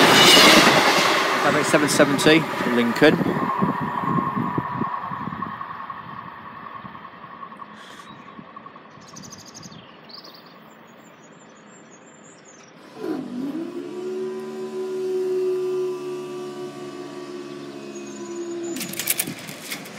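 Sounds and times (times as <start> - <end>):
diesel train running: 0.0 - 9.3, 12.7 - 19.9
birds chirping: 6.0 - 12.9, 15.2 - 19.9
barrier mechanism hum: 12.6 - 19.9.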